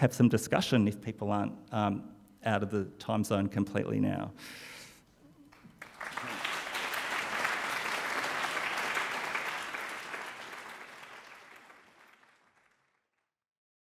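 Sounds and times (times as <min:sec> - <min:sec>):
audience applauding: 0:05.4 - 0:13.1.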